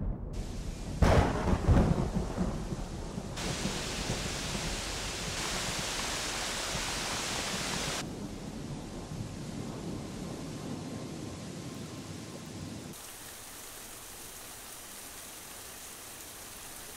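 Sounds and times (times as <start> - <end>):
thunder clap rumbling: 0.0 - 11.6
steady rain hissing: 0.4 - 16.9.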